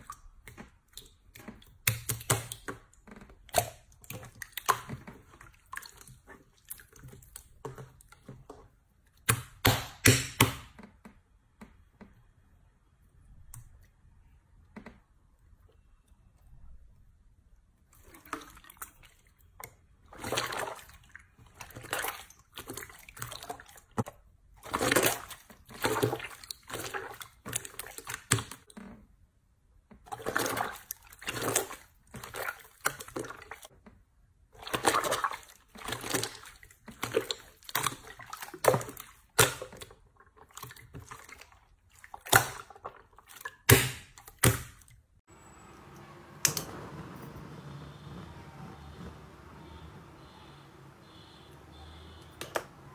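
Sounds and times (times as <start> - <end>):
slime squelching by hand: 0.0 - 10.6, 13.3 - 28.8, 30.0 - 33.8, 34.4 - 45.2.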